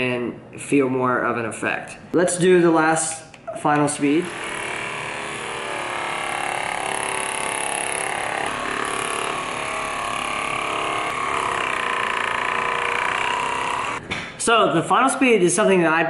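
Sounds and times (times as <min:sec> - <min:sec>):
massage gun motor buzz: 0:04.2 - 0:14.0.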